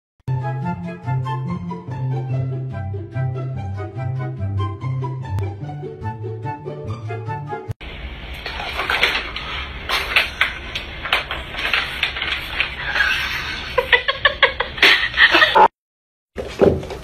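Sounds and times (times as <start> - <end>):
plastic toy clattering on wooden floor: 8.4 - 13.3.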